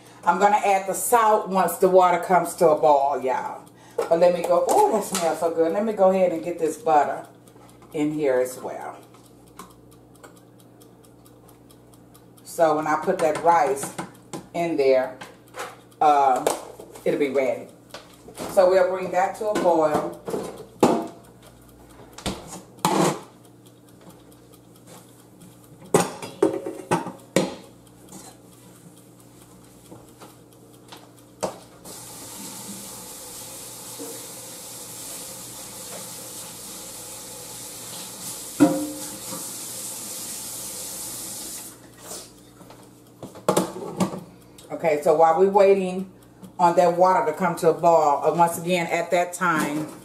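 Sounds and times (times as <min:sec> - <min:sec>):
dish clinking: 0:38.6 - 0:39.1
tap running into metal sink: 0:38.6 - 0:39.5.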